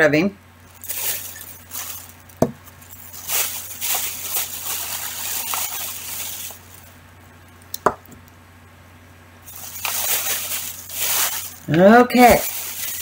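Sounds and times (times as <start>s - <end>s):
plastic bag rustling: 0.6s - 7.6s, 9.4s - 13.0s.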